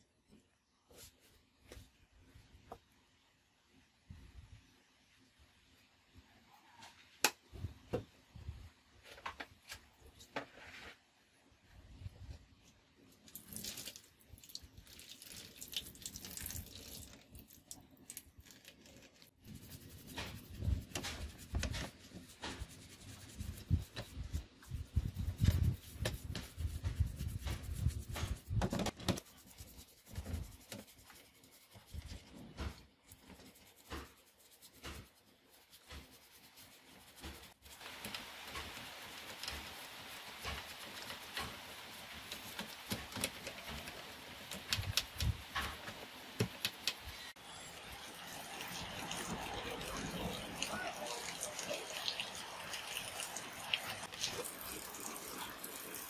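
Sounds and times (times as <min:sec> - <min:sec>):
toothbrush scrubbing metal in water: 0:18.2 - 0:28.6, 0:33.1 - 0:45.3, 0:47.8 - 0:56.0.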